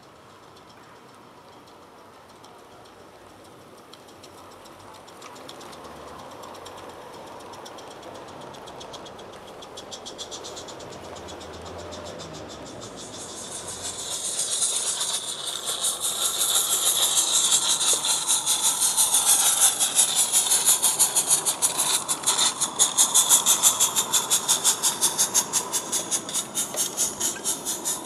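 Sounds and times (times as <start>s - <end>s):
steam locomotive exhaust beats: 0.0s - 28.0s
steam hiss: 5.8s - 28.0s.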